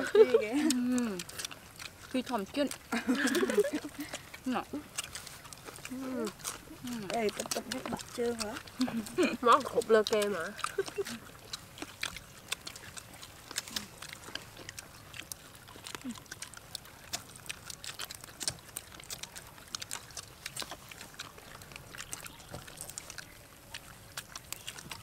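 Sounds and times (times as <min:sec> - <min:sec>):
people chewing crispy food: 0:00.0 - 0:25.0.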